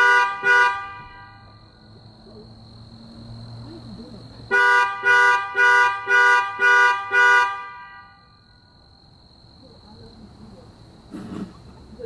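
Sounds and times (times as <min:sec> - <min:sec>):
car alarm horn honks: 0:00.0 - 0:01.8, 0:04.5 - 0:08.4.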